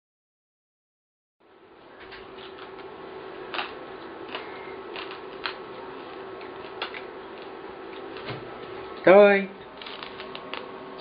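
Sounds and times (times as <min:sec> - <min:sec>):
low room hum: 0:01.4 - 0:11.0
crab shell cracking: 0:03.5 - 0:05.7.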